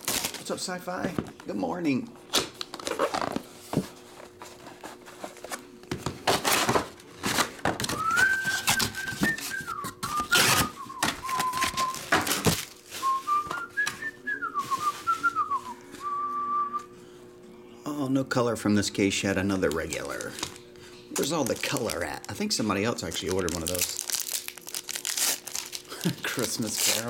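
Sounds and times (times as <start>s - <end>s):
card box packaging rustling: 2.6s - 16.2s, 19.6s - 20.6s, 21.2s - 27.0s
person whistling a tune: 7.9s - 12.2s, 13.0s - 16.9s.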